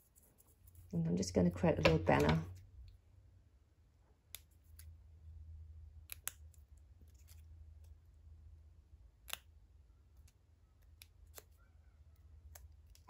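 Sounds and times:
scissors snipping paper: 6.0 - 7.4, 10.2 - 11.6.

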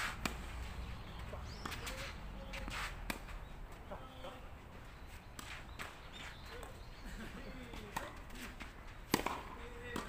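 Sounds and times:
tennis balls struck by rackets: 0.0 - 4.2, 5.3 - 10.0
steady outdoor hum: 0.0 - 10.0.

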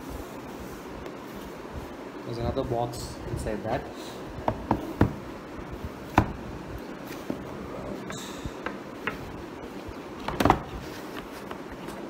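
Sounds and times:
knocks on cardboard box: 4.4 - 5.2.

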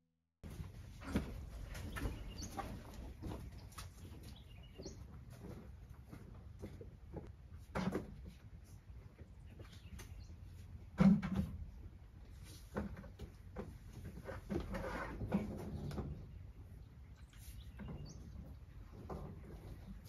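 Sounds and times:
rough scraping: 14.1 - 15.8.

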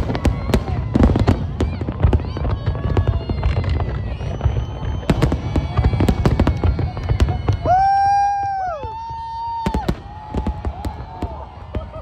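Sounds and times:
fireworks bangs and crackles: 0.0 - 12.0
fireworks whistling: 0.0 - 12.0.

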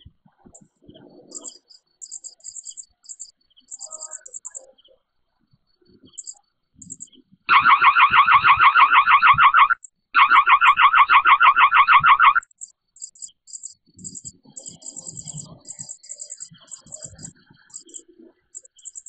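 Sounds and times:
faint high chirping: 0.0 - 7.4, 8.9 - 19.0
warbling siren alarm: 7.5 - 12.5.

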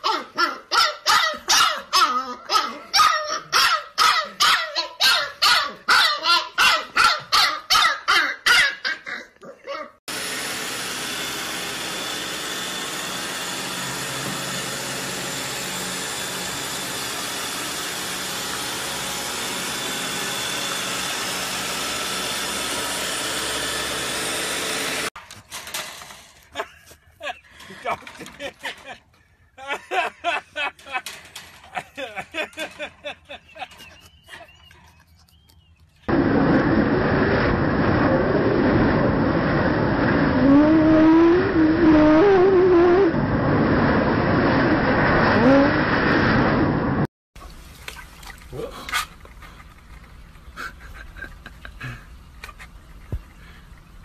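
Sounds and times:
puppy yipping and barking: 0.0 - 10.0.

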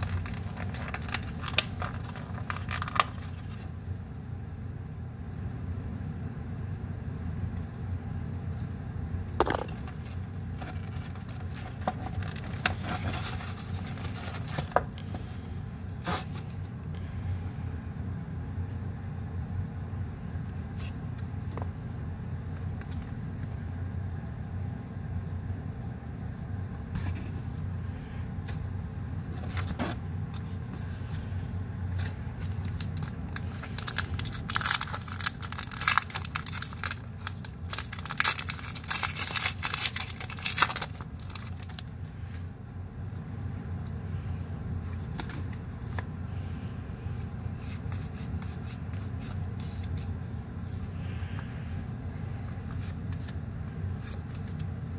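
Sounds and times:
foil wrapper tearing and crinkling: 0.0 - 3.7, 10.6 - 14.8, 32.0 - 42.2
steady low hum: 0.0 - 54.9.

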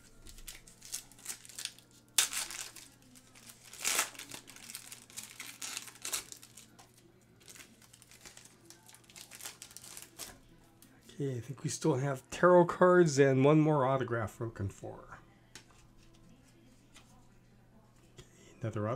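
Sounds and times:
foil wrapper tearing and crinkling: 0.2 - 10.4.

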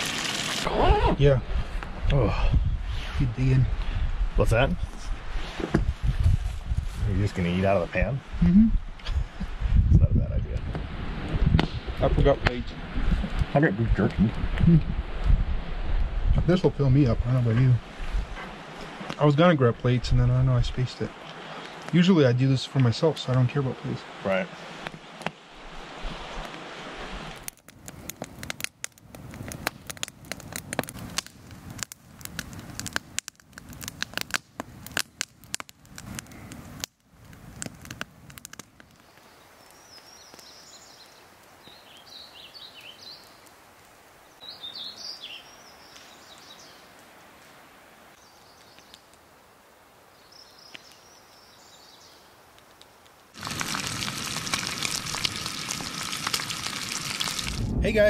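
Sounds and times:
campfire crackling and popping: 0.0 - 58.0
birds chirping: 39.0 - 43.5, 44.2 - 47.0, 50.1 - 52.4.

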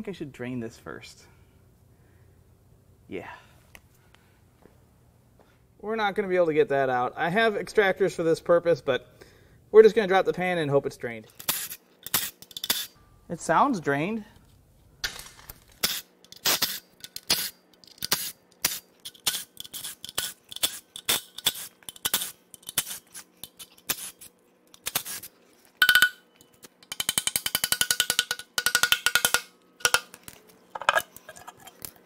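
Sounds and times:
metallic clinks of tools: 25.8 - 30.0
socket ratchet clicking: 26.8 - 30.2.

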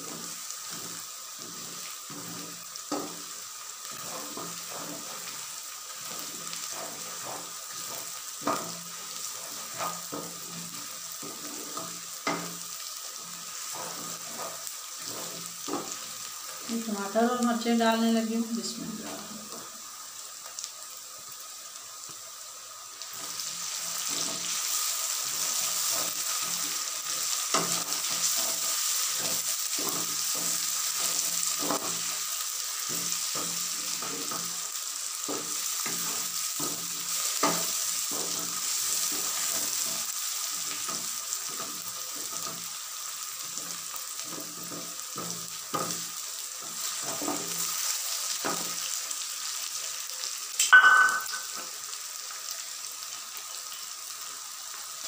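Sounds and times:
wooden spatula scraping pan: 0.0 - 12.5, 13.1 - 16.2, 24.0 - 32.2
vegetables sizzling in hot oil: 0.0 - 55.0.

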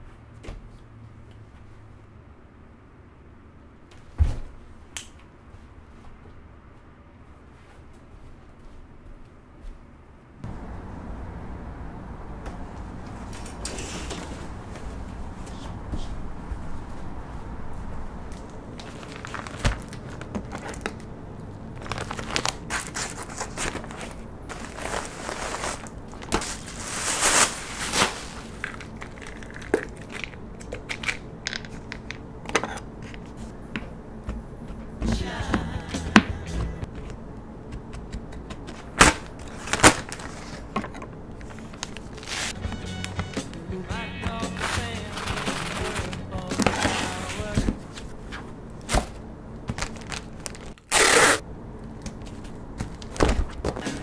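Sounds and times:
paper mailer tearing and crinkling: 18.7 - 31.2, 38.6 - 40.8, 41.4 - 43.3, 44.3 - 48.0, 48.9 - 51.4.

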